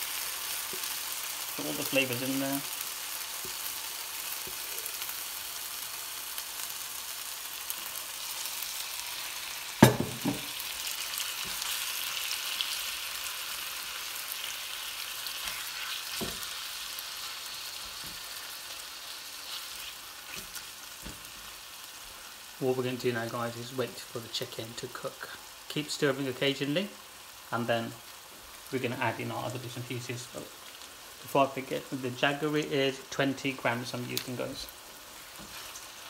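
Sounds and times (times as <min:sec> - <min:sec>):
chicken sizzling in a wok: 0:00.0 - 0:36.0
knocks against the pan: 0:09.8 - 0:10.5.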